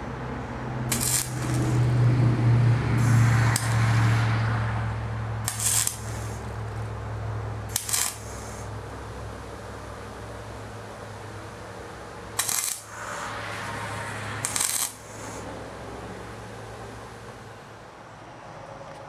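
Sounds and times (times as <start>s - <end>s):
arc welder buzzing and crackling: 0.7s - 9.4s, 11.9s - 15.6s.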